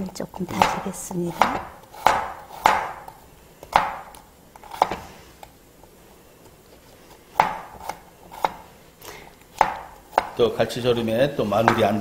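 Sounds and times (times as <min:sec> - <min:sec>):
knife knocking on cutting board: 0:00.5 - 0:03.1, 0:07.4 - 0:07.7, 0:09.6 - 0:10.4.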